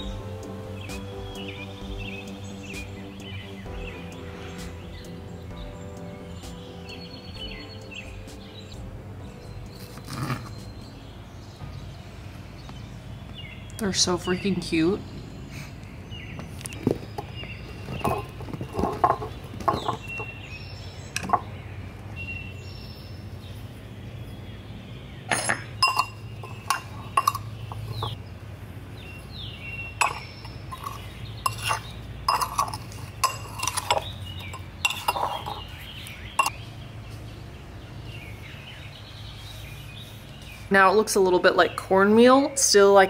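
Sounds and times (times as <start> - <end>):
spoons clinking against bowls: 25.3 - 28.2, 30.0 - 35.7.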